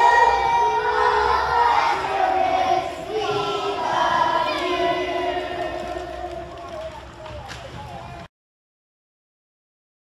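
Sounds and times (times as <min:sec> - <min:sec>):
children singing: 0:00.0 - 0:06.7.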